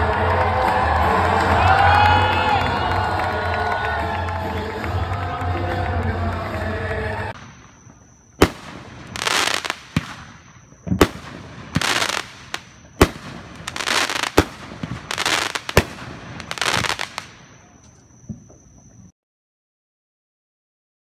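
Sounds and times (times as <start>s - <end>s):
fireworks bangs: 7.3s - 19.1s
sparks crackling: 7.4s - 17.6s.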